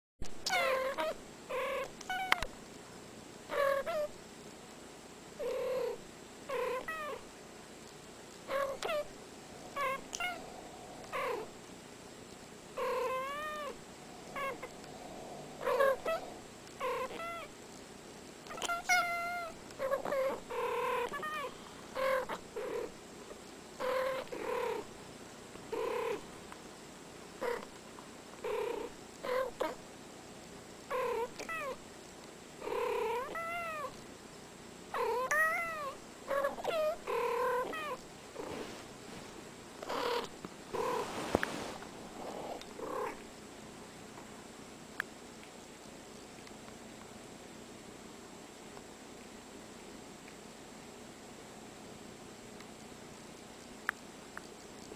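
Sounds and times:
cats meowing: 0:00.4 - 0:02.5, 0:08.5 - 0:11.5, 0:12.8 - 0:17.5, 0:18.5 - 0:22.4, 0:33.0 - 0:34.0, 0:35.0 - 0:38.0.

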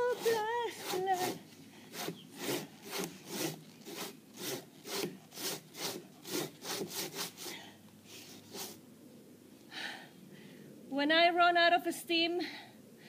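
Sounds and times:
hand saw cutting wood: 0:00.0 - 0:08.8.

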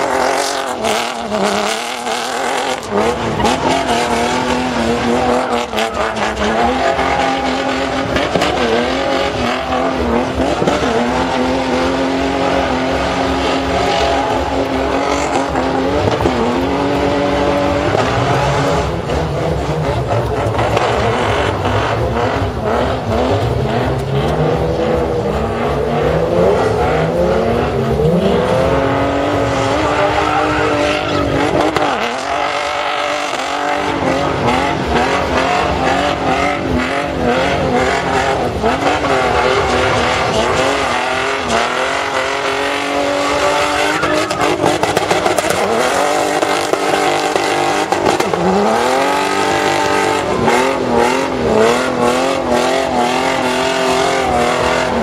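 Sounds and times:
engine revving: 0:00.0 - 0:55.0
tyres squealing on tarmac: 0:00.4 - 0:24.2, 0:26.2 - 0:46.4.

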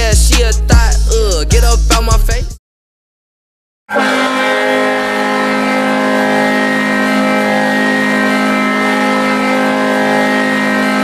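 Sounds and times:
goal horn blast: 0:03.9 - 0:11.0.

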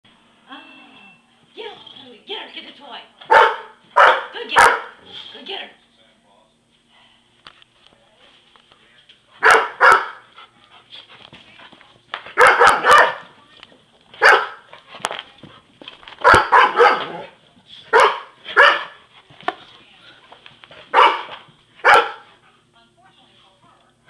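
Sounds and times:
dog barking: 0:03.3 - 0:05.0, 0:09.4 - 0:10.2, 0:12.4 - 0:13.3, 0:14.2 - 0:14.7, 0:16.2 - 0:17.3, 0:17.9 - 0:19.0, 0:20.9 - 0:22.3.

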